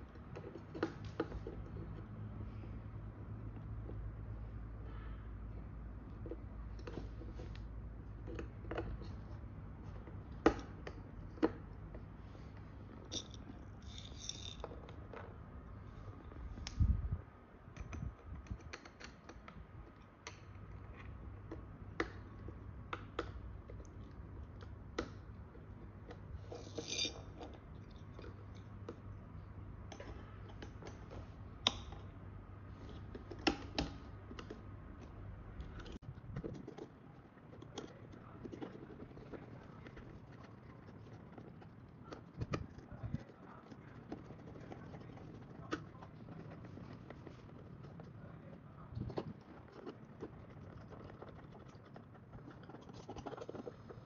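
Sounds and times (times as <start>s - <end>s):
low steady hum: 0.0s - 54.0s
small clicks and taps: 17.8s - 25.3s.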